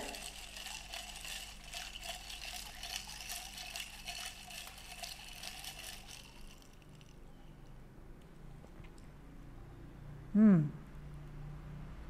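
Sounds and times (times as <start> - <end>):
ice and metal straw clinking in glass: 0.0 - 7.2.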